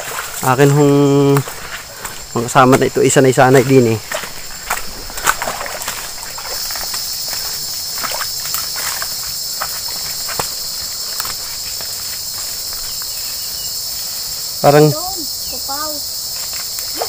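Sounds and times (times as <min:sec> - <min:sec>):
footsteps in brush: 0:00.0 - 0:14.4, 0:16.2 - 0:17.0
high-pitched insect chorus: 0:00.0 - 0:17.0
branches rustling and snapping: 0:04.1 - 0:07.0, 0:08.0 - 0:11.8.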